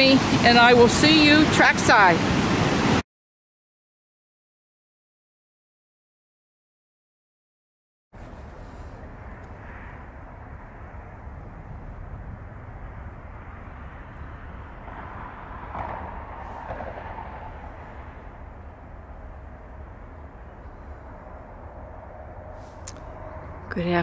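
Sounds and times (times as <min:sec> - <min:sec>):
wind rumbling on microphone: 0:00.0 - 0:03.0, 0:08.2 - 0:24.0.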